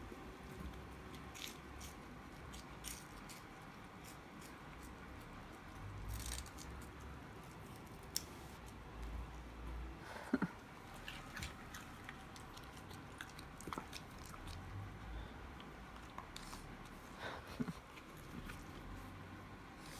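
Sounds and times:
chewing and crunching snacks: 0:00.5 - 0:08.8, 0:10.4 - 0:19.1.

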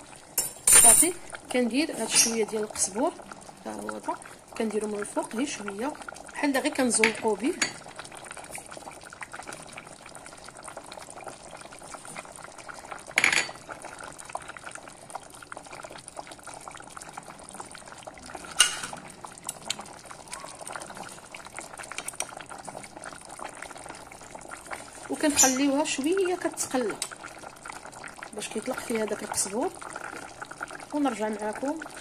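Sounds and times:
stew bubbling in a pot: 0:00.0 - 0:32.0.

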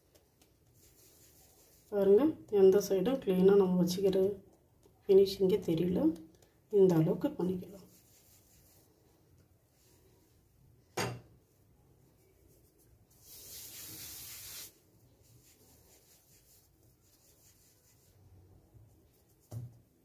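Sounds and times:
hand rubbing flour on worktop: 0:00.2 - 0:02.5, 0:07.7 - 0:10.3, 0:12.2 - 0:19.9.

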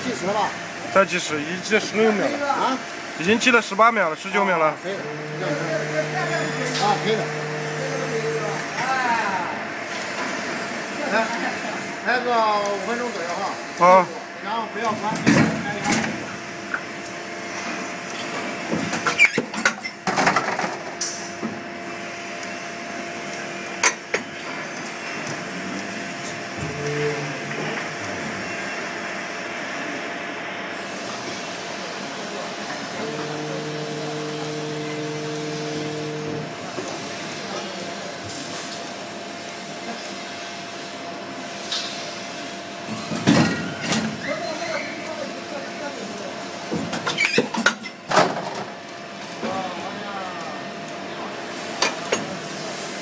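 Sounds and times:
machine humming: 0:00.0 - 0:10.0, 0:32.3 - 0:36.9
machine humming and hissing: 0:00.0 - 0:19.2, 0:20.1 - 0:47.3
loud sudden mechanical noise: 0:04.9 - 0:09.8, 0:33.0 - 0:36.9.

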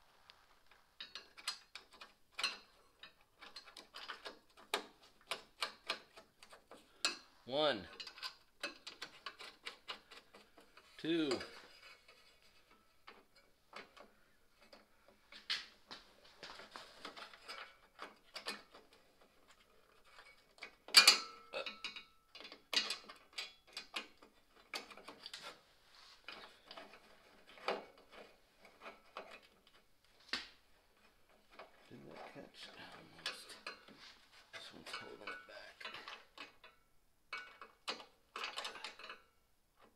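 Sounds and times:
screwdriver clicks and scrapes: 0:07.9 - 0:14.9.

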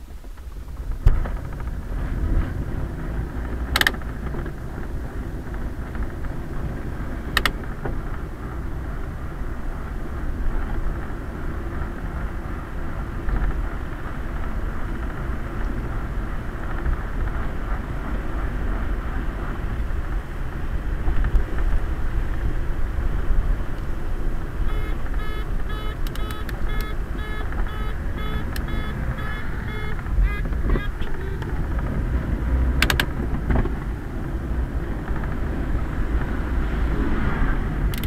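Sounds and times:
tyre and road noise: 0:00.0 - 0:38.0
sharp clicks: 0:03.7 - 0:04.4, 0:07.4 - 0:07.6, 0:24.7 - 0:31.9, 0:32.8 - 0:33.7
short high pitched tones: 0:24.6 - 0:31.6.

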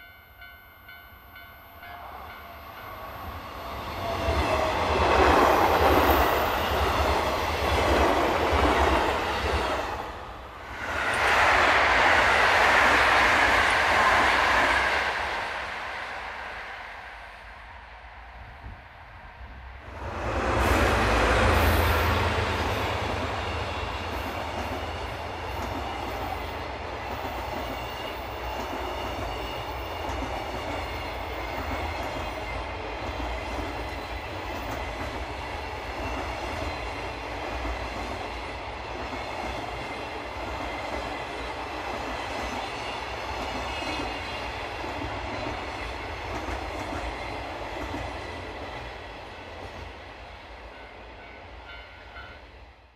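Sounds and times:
diesel locomotive passing: 0:00.0 - 0:52.9
train wheels clattering on rails: 0:20.6 - 0:50.0.

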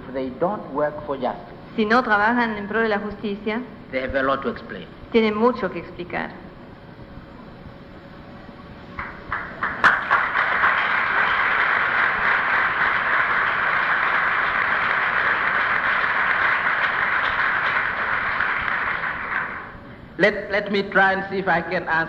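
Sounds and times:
audience applauding: 0:09.0 - 0:19.8.

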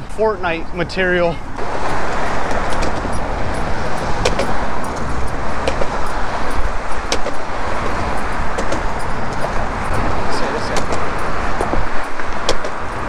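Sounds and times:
cars passing by: 0:00.0 - 0:13.0.

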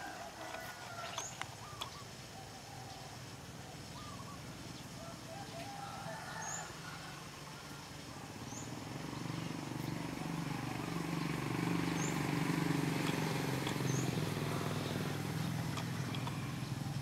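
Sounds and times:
birds calling: 0:00.0 - 0:17.0
low engine hum: 0:07.2 - 0:17.0.

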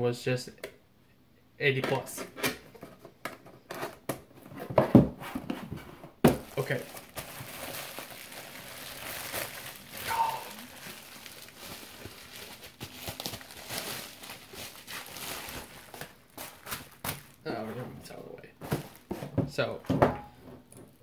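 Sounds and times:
bubble wrap crinkling: 0:06.3 - 0:17.5, 0:18.6 - 0:19.2.

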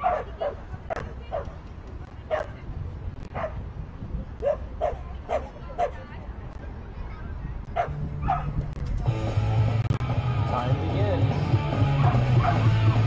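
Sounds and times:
dog barking: 0:00.0 - 0:01.6, 0:02.3 - 0:02.5, 0:03.3 - 0:03.6, 0:04.4 - 0:06.0, 0:07.8 - 0:08.6, 0:12.0 - 0:12.7
low outdoor rumble: 0:00.0 - 0:13.0.

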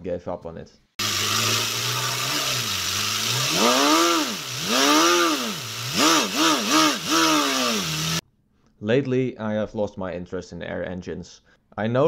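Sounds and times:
compressed-air engine revving: 0:01.0 - 0:08.2.

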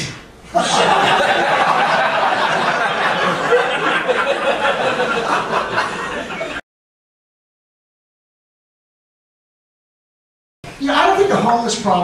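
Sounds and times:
audience laughing: 0:00.6 - 0:06.6.

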